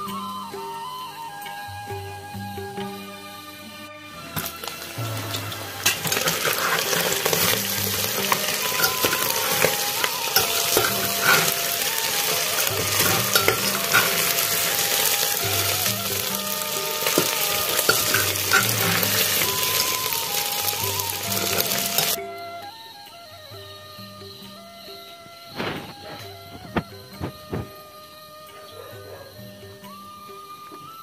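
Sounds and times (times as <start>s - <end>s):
faint background music: 0.0s - 31.0s
chicken sizzling in a pot: 4.4s - 22.2s
metal spatula scraping a pot: 4.4s - 22.2s.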